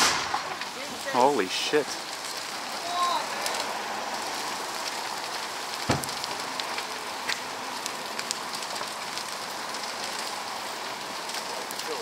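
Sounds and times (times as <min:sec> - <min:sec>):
loud sharp bang: 0:00.0 - 0:00.5, 0:05.9 - 0:06.2
fire crackling and hissing: 0:00.0 - 0:12.0
fire popping: 0:00.0 - 0:12.0.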